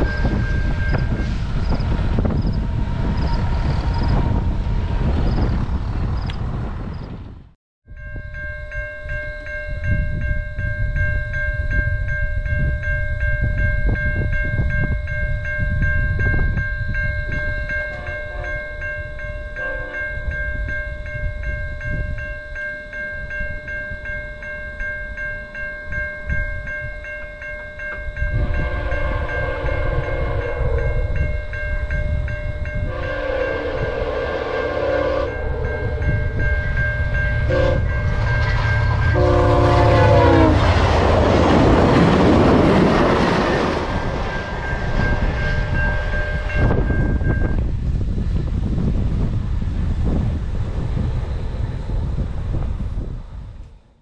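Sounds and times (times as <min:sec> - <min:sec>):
train rushing past: 0:00.0 - 0:07.5, 0:26.0 - 0:53.8
level-crossing bell ringing: 0:07.9 - 0:33.8, 0:35.2 - 0:40.5, 0:42.6 - 0:47.7
train horn blasts: 0:17.9 - 0:18.8, 0:19.5 - 0:20.3, 0:28.3 - 0:31.2, 0:32.8 - 0:36.8, 0:37.4 - 0:41.5, 0:43.9 - 0:47.7.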